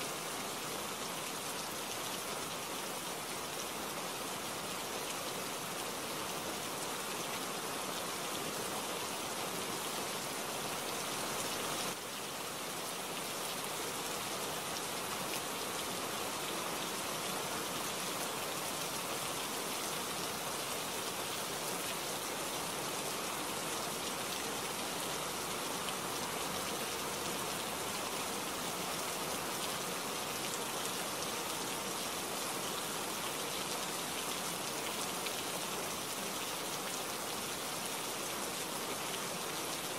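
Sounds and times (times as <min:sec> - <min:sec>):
steady rainfall: 0:00.0 - 0:39.9.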